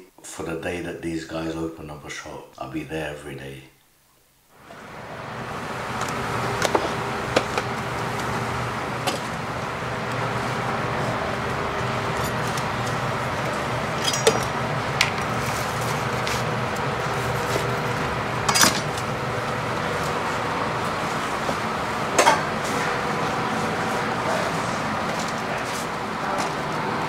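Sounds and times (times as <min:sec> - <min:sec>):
steady kitchen hum: 0:04.5 - 0:27.0
dishes and utensils clinking: 0:14.0 - 0:14.6, 0:18.5 - 0:19.0, 0:22.2 - 0:22.5.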